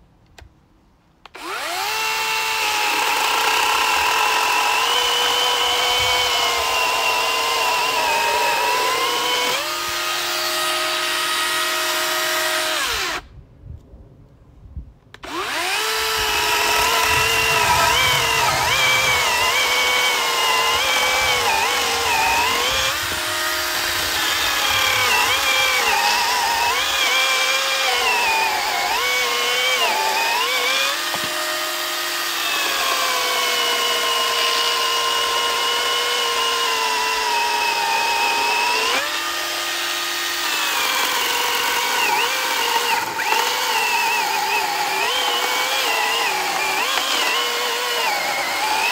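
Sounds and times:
electric chainsaw cutting log: 1.3 - 13.2, 15.2 - 48.9.

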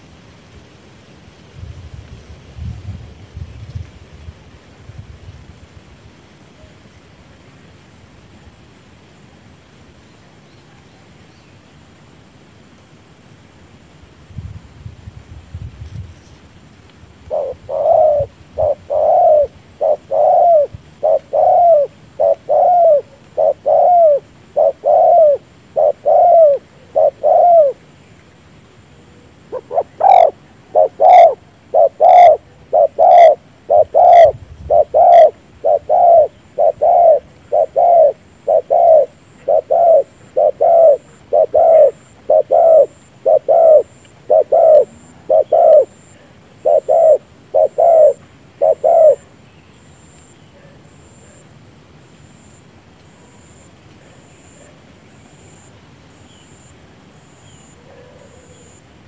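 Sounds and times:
dove cooing: 17.2 - 27.8, 29.0 - 49.3, 57.6 - 58.8.

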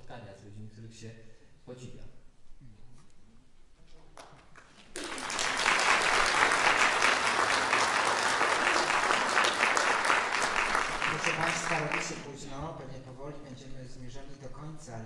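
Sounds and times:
audience applauding: 4.6 - 12.4.

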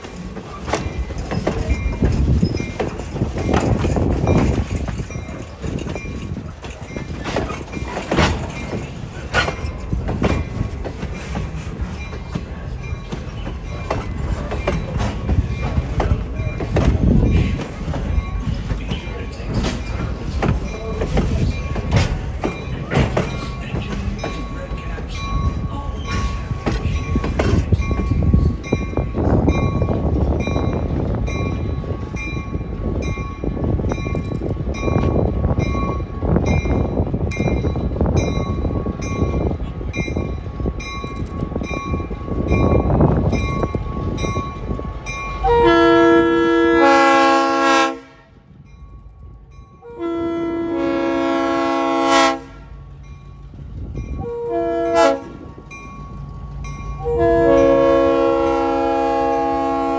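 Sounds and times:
train rumbling past: 0.0 - 59.9
locomotive air horn blasts: 45.4 - 48.3, 49.8 - 52.7, 54.2 - 55.4, 57.0 - 59.9.

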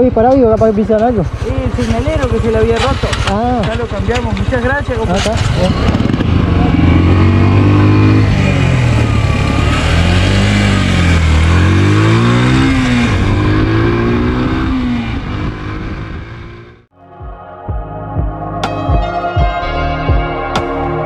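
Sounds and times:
motorcycle engine accelerating: 0.0 - 16.9
background music with soft beat: 17.0 - 21.0.

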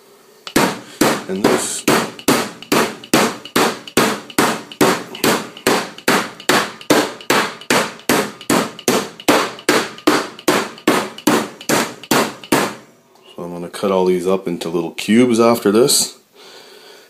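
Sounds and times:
metal meat hammer pounding steak: 0.5 - 12.8.

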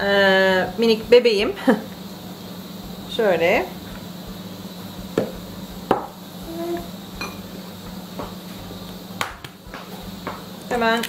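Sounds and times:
glass and dishes clinking on table: 7.2 - 7.4.

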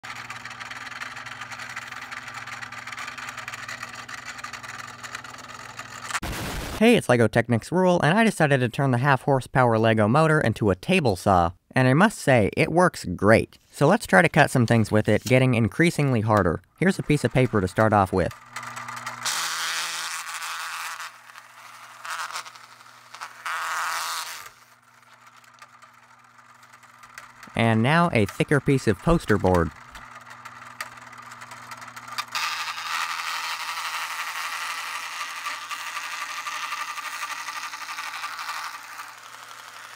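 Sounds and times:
toy table saw whirring: 0.0 - 6.2, 14.1 - 39.9
electric motor humming: 0.0 - 6.8, 16.8 - 39.9
paper scraping and tearing: 6.2 - 6.8.

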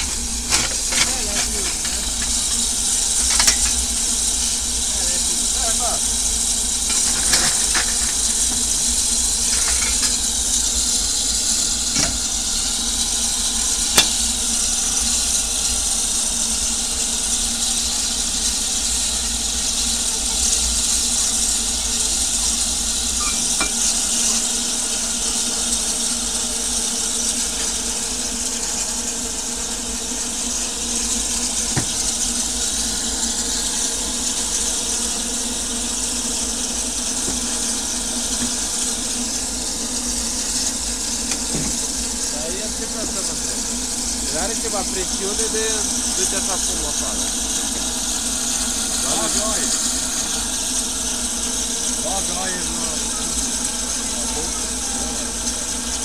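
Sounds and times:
steam hissing: 0.0 - 56.0
shovel and firebox door knocks: 11.9 - 12.3, 31.7 - 32.2.

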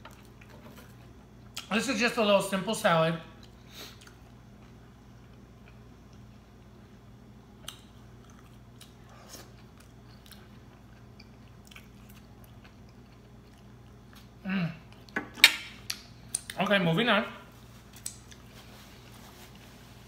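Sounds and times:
quiet chewing of salad: 3.3 - 7.0, 7.6 - 15.2, 17.6 - 19.8.

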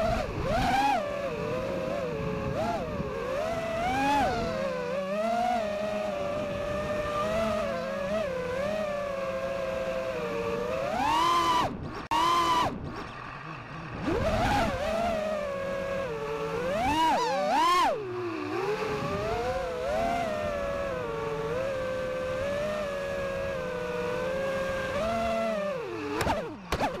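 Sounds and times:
drone motors whining: 0.0 - 27.0.

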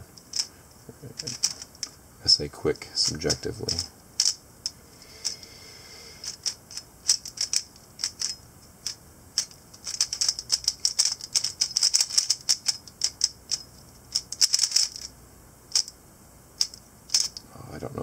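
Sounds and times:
plastic cube layers clicking: 1.2 - 1.9, 3.0 - 4.4, 6.2 - 15.1, 16.6 - 17.4.

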